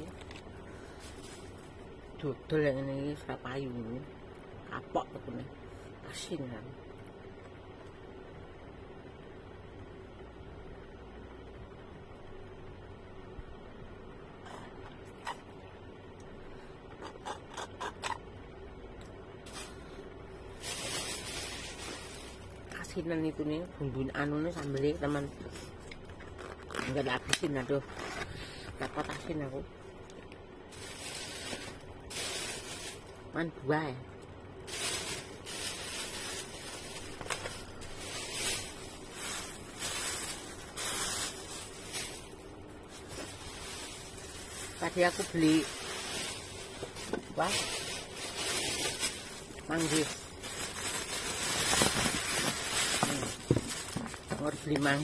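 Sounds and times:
plastic bag crinkling: 0.0s - 2.0s, 19.4s - 23.0s, 24.3s - 29.6s, 30.7s - 33.4s, 34.6s - 55.0s.

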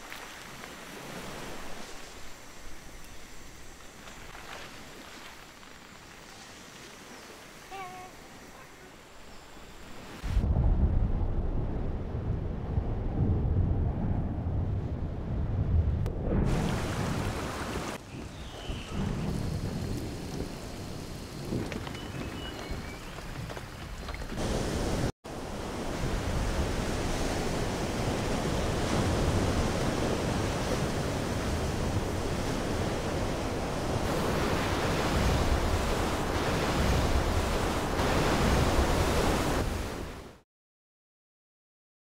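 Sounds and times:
wind and rain: 0.0s - 40.4s
rush of wind and breaking surf: 9.8s - 40.4s.

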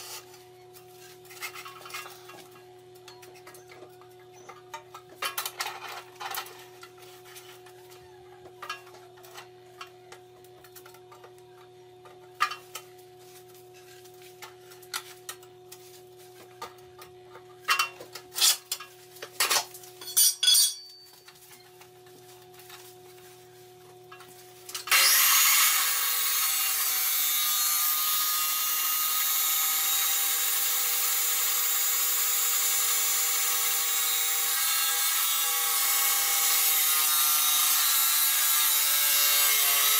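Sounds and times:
abrasive saw cutting steel: 24.7s - 39.9s.

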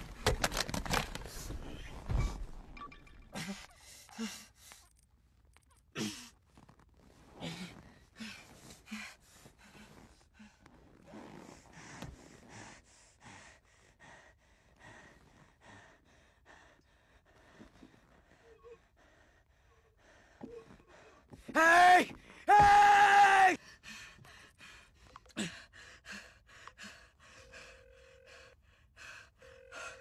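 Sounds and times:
man breathing hard: 23.5s - 30.0s.

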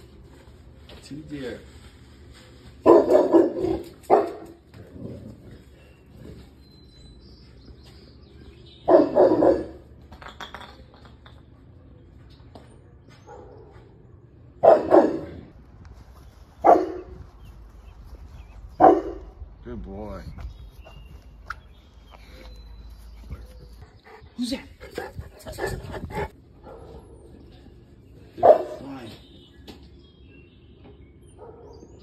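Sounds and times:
dogs barking: 2.8s - 5.1s, 8.8s - 9.9s, 13.2s - 14.0s, 14.6s - 15.6s, 16.6s - 17.2s, 18.7s - 19.4s, 25.0s - 27.5s, 28.4s - 29.0s, 31.3s - 32.0s.

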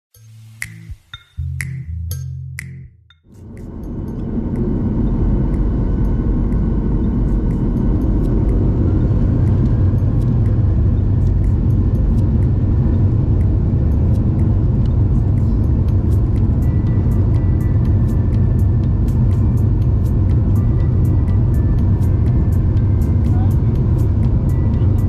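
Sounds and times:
jet engines low rumble: 3.3s - 25.0s.

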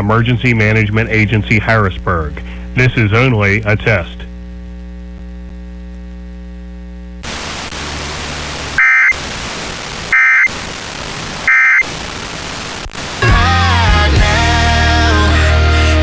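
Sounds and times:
steady hum: 0.0s - 15.4s
static hiss: 1.7s - 15.3s
warbling data bursts: 7.2s - 13.7s.

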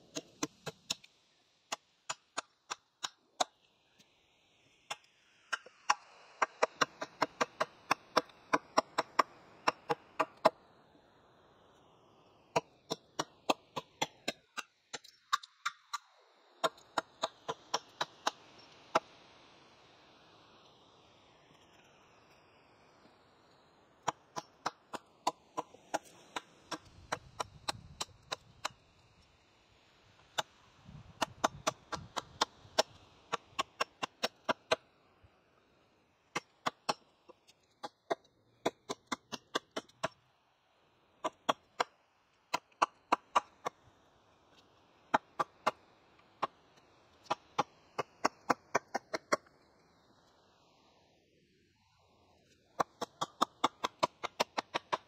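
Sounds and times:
hatchet chopping wood: 0.1s - 1.1s, 1.7s - 3.6s, 4.9s - 10.6s, 12.5s - 16.0s, 16.6s - 18.4s, 24.0s - 28.8s, 30.2s - 34.8s, 36.3s - 40.2s, 41.2s - 41.9s, 42.5s - 43.8s, 45.1s - 45.8s, 47.2s - 49.5s, 52.8s - 55.0s.

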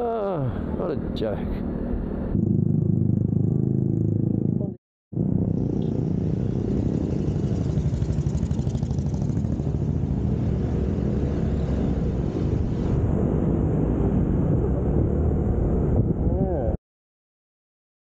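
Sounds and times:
wind noise on microphone: 5.2s - 16.8s
motor scooter engine running: 6.5s - 10.0s.

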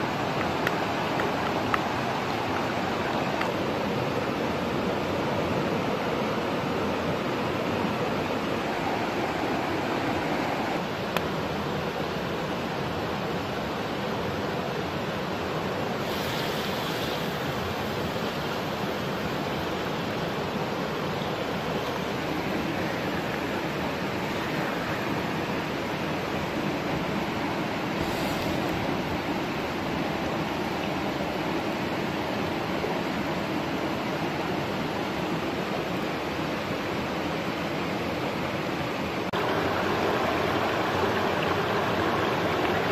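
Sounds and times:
steady rushing noise: 0.0s - 13.0s, 36.7s - 42.9s.

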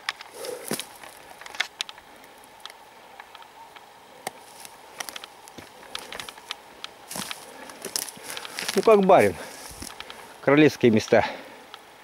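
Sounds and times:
twigs snapping underfoot: 0.0s - 10.3s
rustling of dry forest litter: 0.0s - 12.0s
running stream water hiss: 0.3s - 1.4s, 6.5s - 12.0s.

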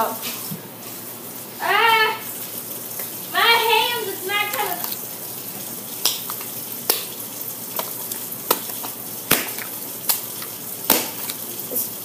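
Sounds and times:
slime squelching: 4.1s - 11.9s
slime popping: 6.0s - 11.4s.

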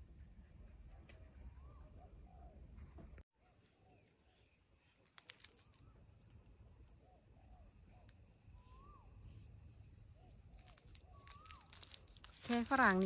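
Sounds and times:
rising and falling bird call: 7.0s - 11.8s
short bird chirps: 7.1s - 11.7s.

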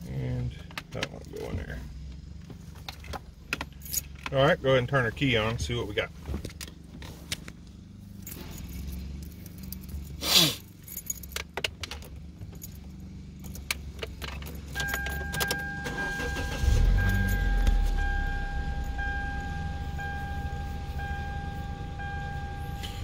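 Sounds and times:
car keys jangling: 0.4s - 4.6s, 6.4s - 23.0s
car warning chime: 14.7s - 23.0s.

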